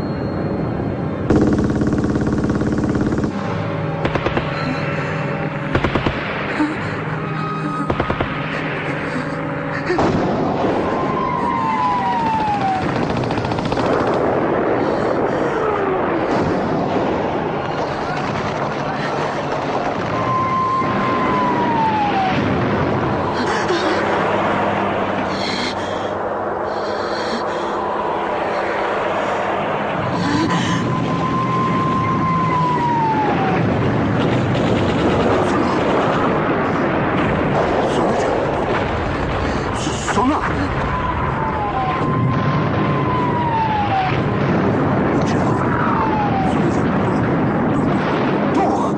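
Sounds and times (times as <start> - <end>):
rumble of gunfire and explosions: 0.0 - 48.9
machine-gun rattle: 1.3 - 3.4.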